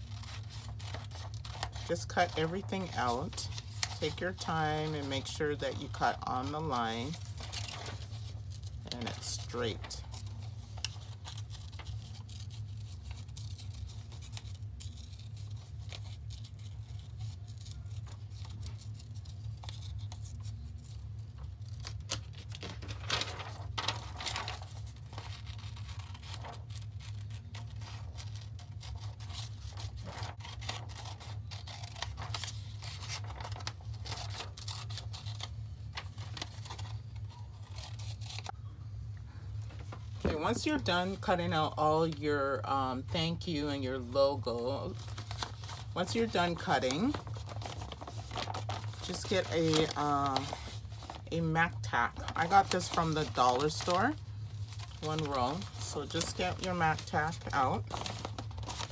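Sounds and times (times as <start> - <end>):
scissors snipping paper: 0.0 - 35.5
paper rustling: 0.0 - 38.6, 39.5 - 42.2, 44.0 - 58.9
steady low hum: 0.0 - 58.9.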